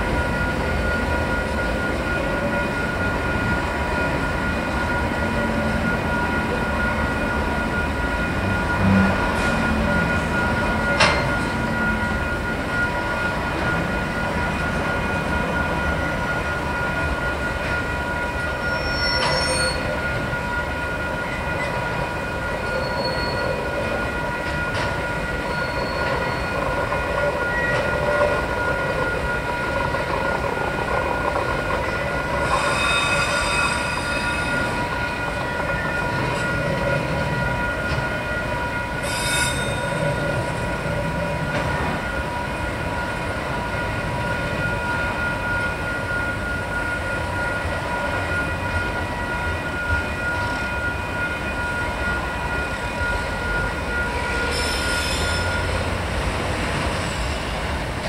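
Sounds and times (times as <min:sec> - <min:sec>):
train wagons rumbling: 0:00.0 - 0:58.0
high-pitched wheel squeal: 0:18.6 - 0:20.0, 0:25.5 - 0:26.6, 0:32.4 - 0:34.8, 0:39.0 - 0:40.1, 0:54.2 - 0:56.0.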